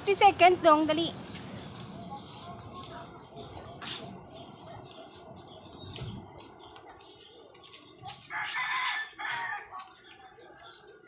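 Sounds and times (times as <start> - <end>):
rooster crowing: 8.3 - 9.7.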